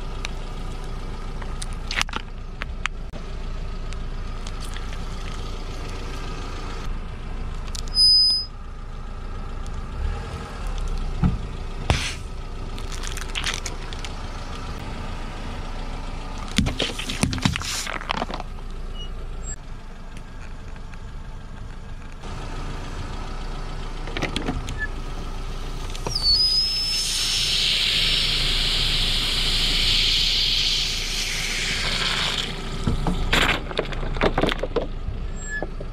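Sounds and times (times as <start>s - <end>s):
car engine running: 0.0s - 35.9s
brief high squeal: 7.9s - 8.5s, 26.1s - 32.4s, 35.4s - 35.7s
plastic cracking and crunching: 12.8s - 14.1s, 16.5s - 18.5s
car tyre rolling over objects: 15.5s - 22.4s, 31.0s - 35.9s.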